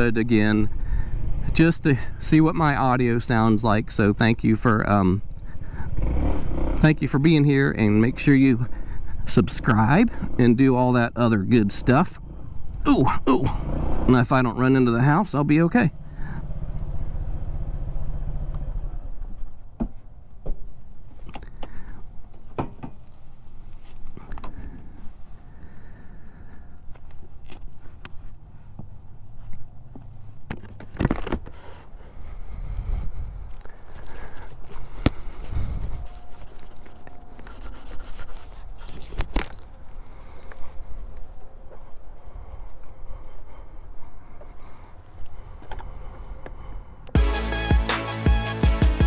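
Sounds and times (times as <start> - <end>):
motorcycle engine idling: 15.8 - 19.7
scraping against microphone: 32.7 - 39.8.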